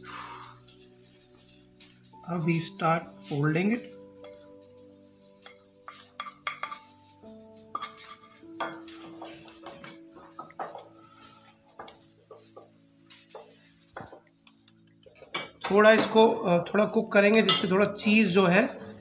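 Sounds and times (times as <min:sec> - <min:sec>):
egg sizzling: 0:00.0 - 0:19.0
wooden spatula scraping metal pan: 0:01.5 - 0:14.4.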